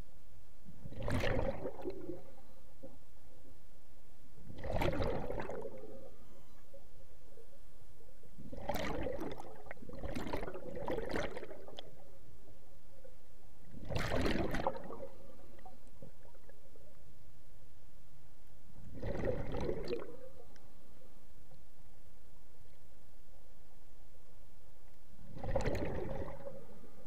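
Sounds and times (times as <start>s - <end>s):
underwater exhaled bubbles rushing: 0.8s - 2.4s, 4.5s - 6.2s, 8.4s - 12.0s, 13.7s - 16.5s, 18.9s - 20.4s, 25.3s - 27.0s.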